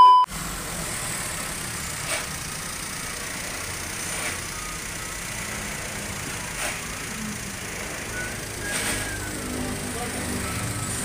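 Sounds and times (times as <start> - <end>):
test-tone beep: 0.0 - 0.3
car engine idling: 0.3 - 11.0.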